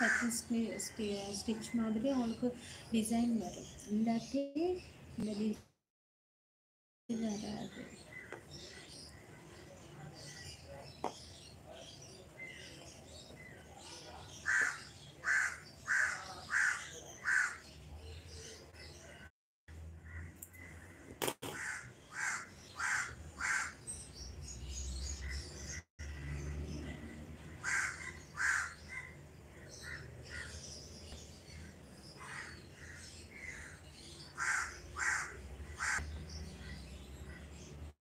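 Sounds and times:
crows cawing: 0.0 - 0.4, 14.4 - 17.6, 20.0 - 23.8, 27.5 - 30.6, 32.2 - 36.1.

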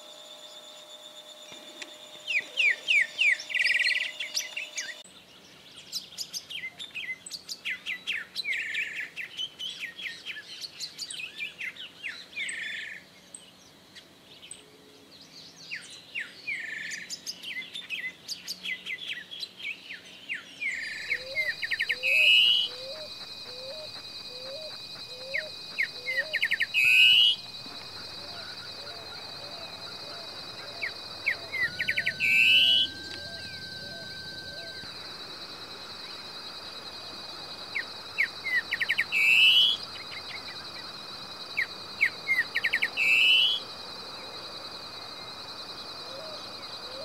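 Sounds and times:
steady high-pitched tone: 0.0 - 5.0, 20.9 - 47.0
bird singing whistled phrases: 0.5 - 5.0, 16.2 - 36.3, 37.7 - 40.6, 41.6 - 43.6.

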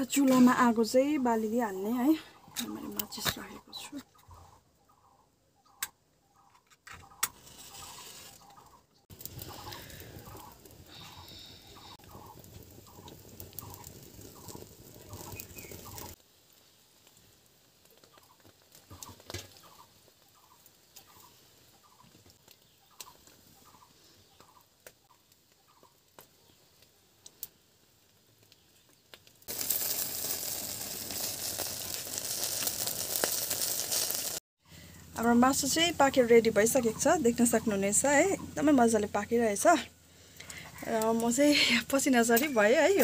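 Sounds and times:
bird calling: 4.0 - 13.8.

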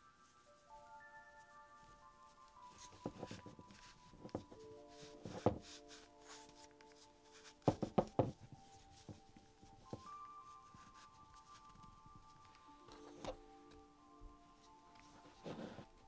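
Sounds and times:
soft background music: 0.0 - 16.0
plastic doll limbs knocking: 5.3 - 5.6, 7.6 - 8.5.

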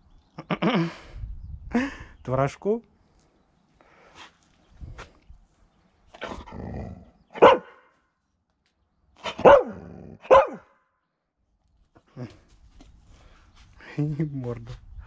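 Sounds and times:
dog barking: 7.4 - 7.9, 9.2 - 10.8.

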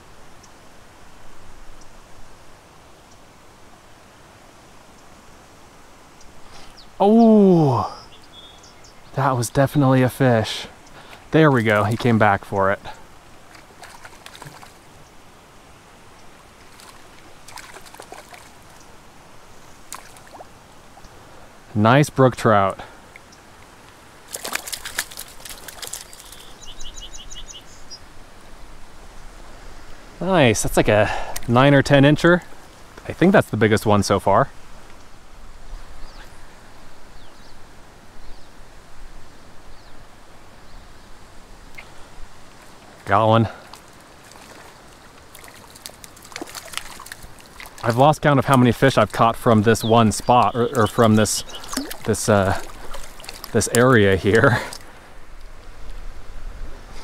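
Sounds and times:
light steady hiss: 0.0 - 57.0
wind: 0.0 - 57.0
small bird chirping: 8.0 - 9.2, 25.8 - 28.0, 49.8 - 52.2
fish splashing at surface: 13.5 - 14.8, 16.7 - 18.8, 24.3 - 26.4, 44.2 - 47.9, 50.7 - 53.9.

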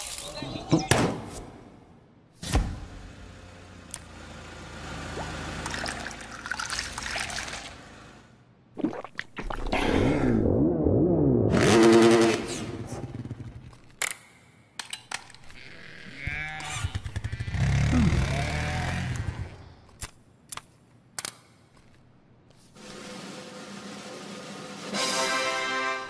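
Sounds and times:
motorcycle engine revving: 11.5 - 13.6, 15.9 - 19.7
small engine revving: 11.5 - 13.6, 15.6 - 19.7.

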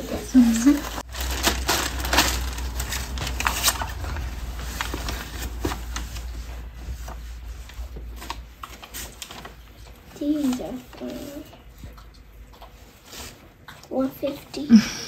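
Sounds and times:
plastic bag and paper rustling: 0.0 - 11.9.

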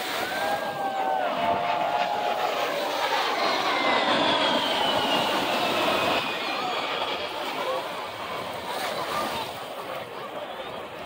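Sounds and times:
jet flying overhead: 0.0 - 11.0.

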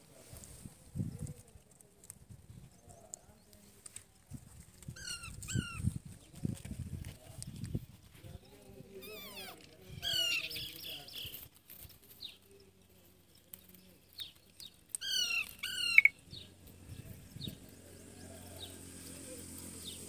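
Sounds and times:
parakeets screeching squawks: 5.0 - 5.8, 9.0 - 10.9, 15.0 - 16.2
faint bird chirps: 13.4 - 18.7.

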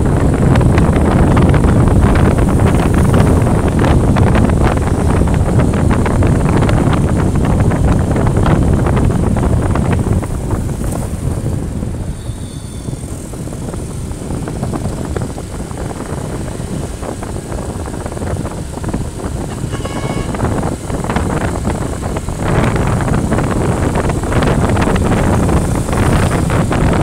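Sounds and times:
motorbike engine: 0.0 - 27.0
motorbike traffic: 0.0 - 27.0
wind buffeting microphone: 0.0 - 27.0
short high tone: 19.5 - 20.4.

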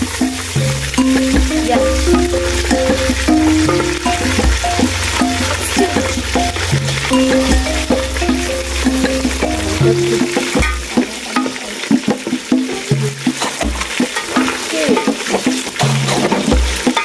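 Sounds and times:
background music with bass: 0.0 - 11.3
food sizzling in a pot: 0.0 - 17.0.

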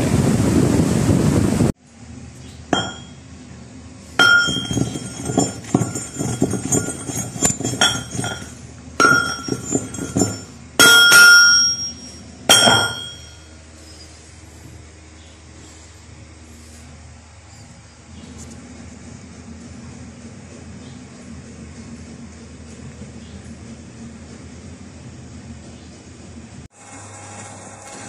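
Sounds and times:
pestle clinking in metal mortar: 2.8 - 3.2, 4.2 - 13.4.

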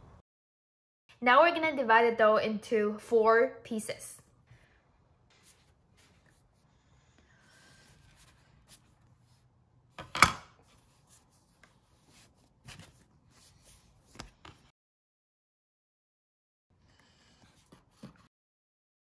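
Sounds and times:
soft handling sounds: 4.5 - 9.5.

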